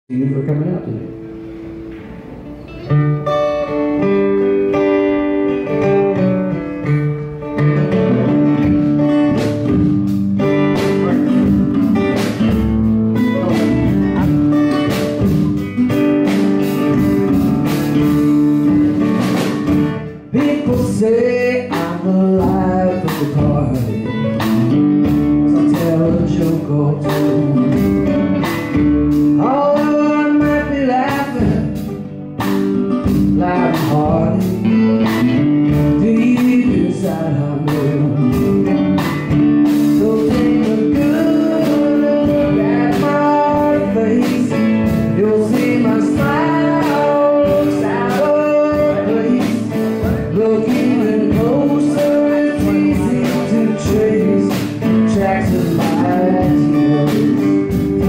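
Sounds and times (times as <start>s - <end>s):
man singing: 0.1s - 1.2s, 10.8s - 15.9s, 20.0s - 32.0s, 33.0s - 58.0s
acoustic guitars strumming: 0.1s - 58.0s
drum kit beat: 0.2s - 58.0s.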